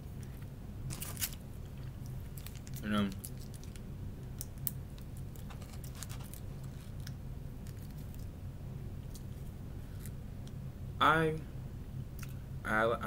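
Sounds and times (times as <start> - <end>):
low steady hum: 0.0 - 13.0
food handling clicks and crinkles: 0.2 - 3.8, 4.4 - 8.3.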